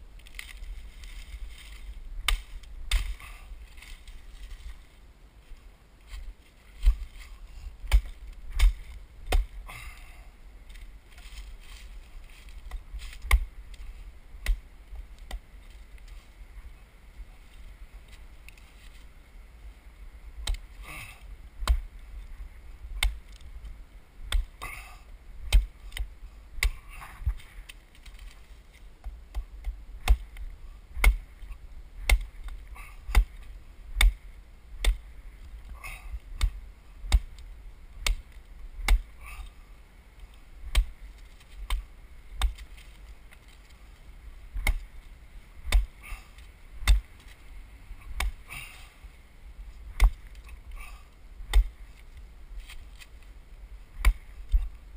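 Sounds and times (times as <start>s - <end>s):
wood chopping blows: 1.6s - 3.9s, 7.8s - 10.1s, 24.2s - 27.5s, 29.0s - 34.2s, 38.0s - 39.5s, 45.6s - 47.4s, 48.0s - 48.9s, 49.9s - 51.8s, 54.0s - 54.7s.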